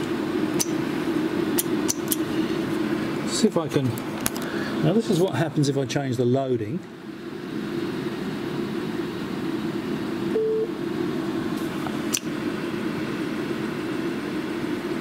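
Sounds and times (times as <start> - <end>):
cooling fan whirring: 0.0 - 15.0
sharp click: 0.6 - 0.8.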